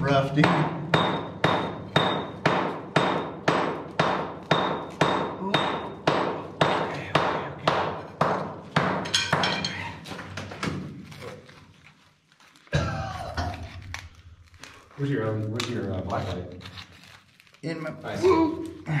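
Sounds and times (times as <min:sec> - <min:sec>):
hammer striking chisel on rock: 0:00.4 - 0:09.7.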